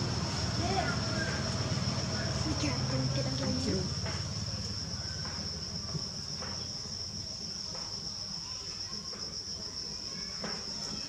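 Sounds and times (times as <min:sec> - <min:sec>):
insect drone: 0:00.0 - 0:11.0.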